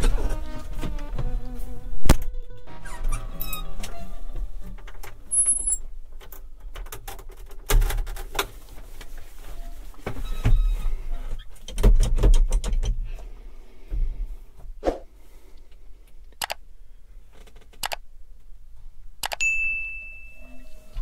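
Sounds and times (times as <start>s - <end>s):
heavy thumps: 0.0s - 5.3s
clicks and knocks on a tractor: 6.1s - 8.6s, 11.6s - 13.1s.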